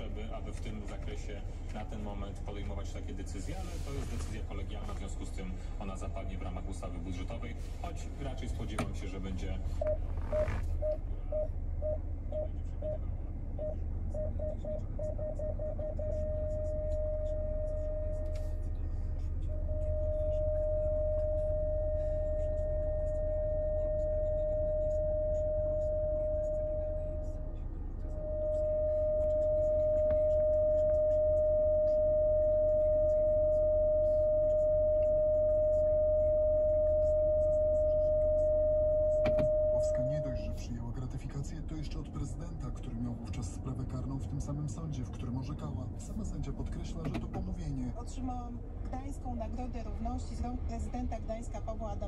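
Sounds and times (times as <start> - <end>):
steady low hum: 0.0 - 52.0
parking sensor beeps: 7.9 - 48.2.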